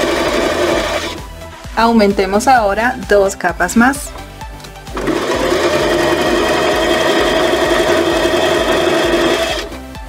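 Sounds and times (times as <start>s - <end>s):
sewing machine stitching: 0.0s - 1.2s, 4.9s - 9.7s.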